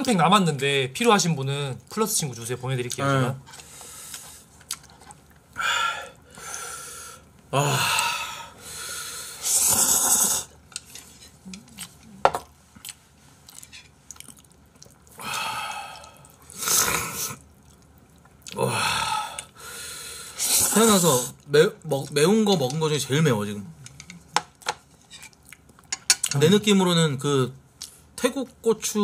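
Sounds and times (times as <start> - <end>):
sharp hissing breaths: 7.9 - 10.6, 18.8 - 20.8
noodle slurping: 9.4 - 10.5.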